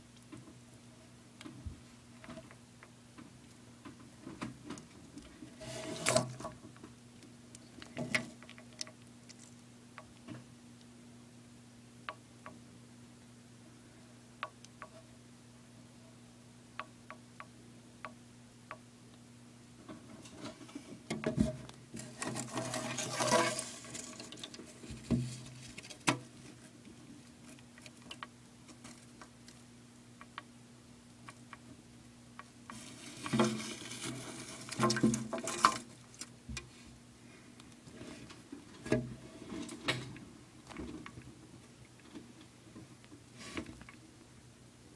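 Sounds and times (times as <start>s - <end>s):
rustling and scraping in glass terrarium: 4.7s - 6.8s, 20.0s - 29.3s, 32.7s - 36.9s, 37.8s - 41.2s, 43.3s - 44.0s.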